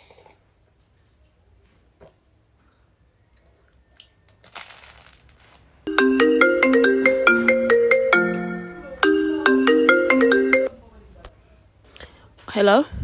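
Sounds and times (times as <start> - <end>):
crunch of bread being bitten: 4.0 - 5.6
phone ringtone melody: 5.9 - 10.8.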